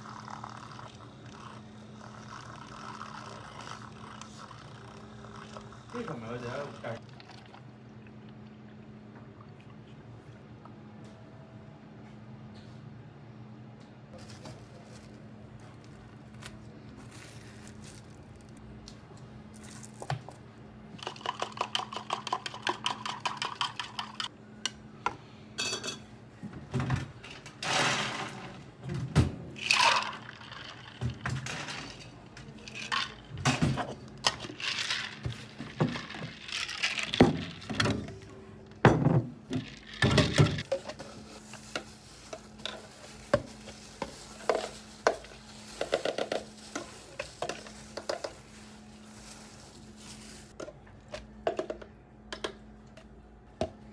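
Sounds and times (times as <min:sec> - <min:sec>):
ice shaken in shaker: 0:21.0 - 0:24.3, 0:29.6 - 0:31.0, 0:32.6 - 0:33.3, 0:34.3 - 0:37.7
plastic cups clinking and knocking: 0:21.0 - 0:24.3, 0:41.8 - 0:48.4, 0:50.6 - 0:52.6.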